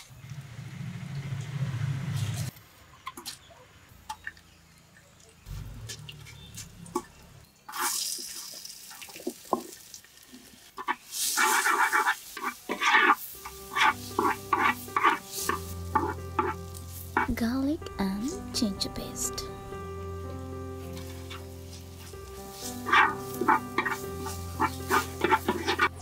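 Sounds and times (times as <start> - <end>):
seeds crackling in hot oil: 0.0 - 18.3, 20.2 - 26.0
onions sizzling in oil: 7.6 - 17.4, 20.8 - 26.0
wooden spoon scraping a pot: 10.8 - 17.4, 20.9 - 26.0.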